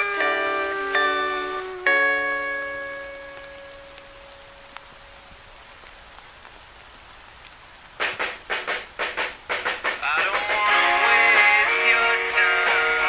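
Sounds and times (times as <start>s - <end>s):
electric guitar strummed chords: 0.0s - 4.1s, 10.0s - 13.0s
held note of a song: 0.0s - 4.8s
steady rain hiss: 0.0s - 13.0s.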